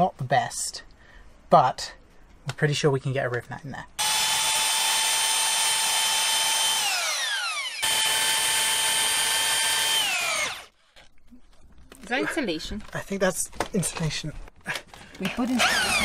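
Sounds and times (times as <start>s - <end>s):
power drill boring through sheet metal: 4.0s - 10.8s, 15.6s - 16.0s.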